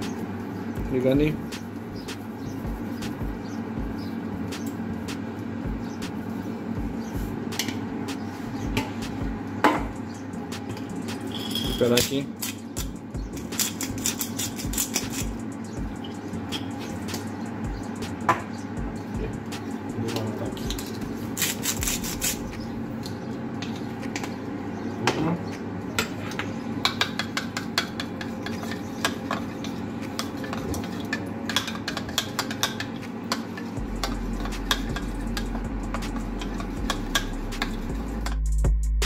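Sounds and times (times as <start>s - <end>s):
metal spoon clinking in bowl: 11.3s - 12.1s.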